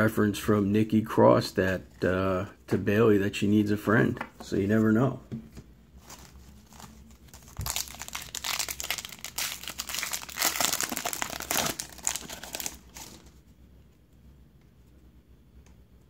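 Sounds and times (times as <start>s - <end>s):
card pack wrapper crinkling: 6.0s - 13.4s.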